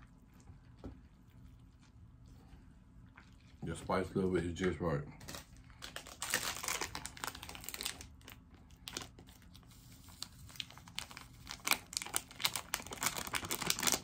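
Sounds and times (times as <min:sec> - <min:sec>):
plastic packet crinkling: 0:05.2 - 0:14.0.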